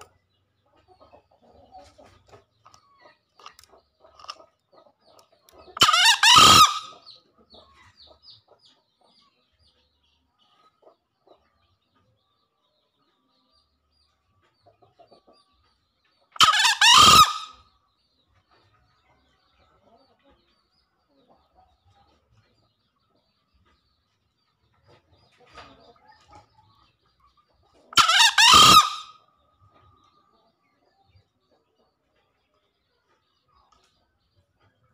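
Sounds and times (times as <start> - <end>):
junglefowl crowing: 5.8 - 7.0, 16.4 - 17.6, 28.0 - 29.2.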